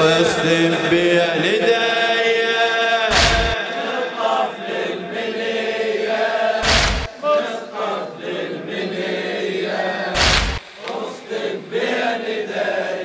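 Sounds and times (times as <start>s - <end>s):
crowd chanting in unison: 0.0s - 13.0s
chest-beating strikes: 3.1s - 3.6s, 6.6s - 7.2s, 10.2s - 10.8s.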